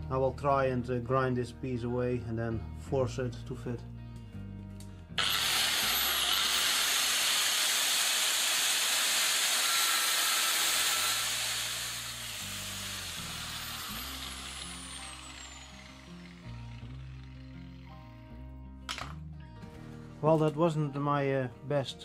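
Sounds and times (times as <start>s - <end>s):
angle grinder grinding metal: 5.2s - 18.1s.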